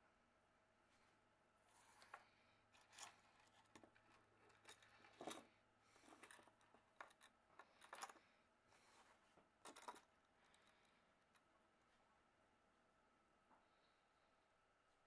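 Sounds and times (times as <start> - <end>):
light handling clicks and rustles: 1.9 - 11.5.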